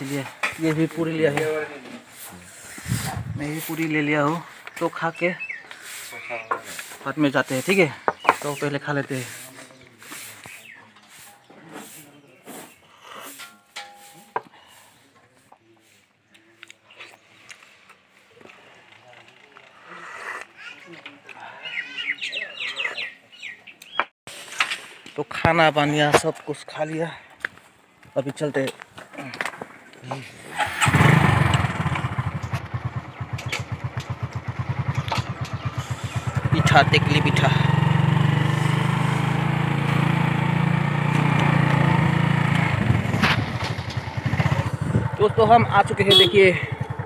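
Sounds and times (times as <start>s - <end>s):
faint background voices: 6.0s - 23.4s
motorcycle engine idling: 30.6s - 47.0s.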